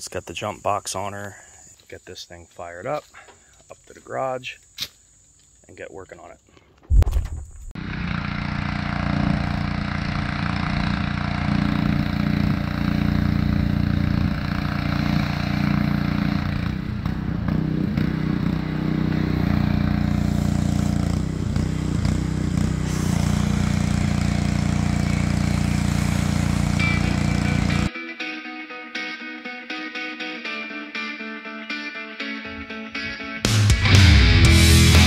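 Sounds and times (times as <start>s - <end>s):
pressure washer engine running: 7.8s - 27.9s.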